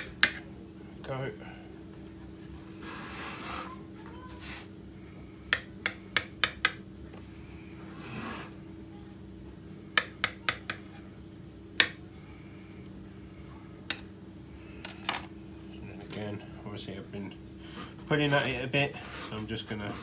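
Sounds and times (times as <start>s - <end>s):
knife scraping through dough: 1.8s - 3.8s, 7.9s - 8.6s, 17.7s - 20.0s.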